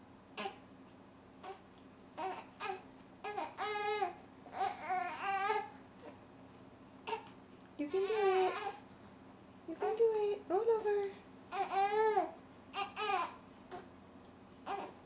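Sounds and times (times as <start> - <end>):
baby grunting: 0.4 - 0.6
baby whiny crying: 0.4 - 0.6, 1.4 - 1.6, 2.2 - 6.2, 7.0 - 8.8, 11.5 - 13.9, 14.6 - 15.0.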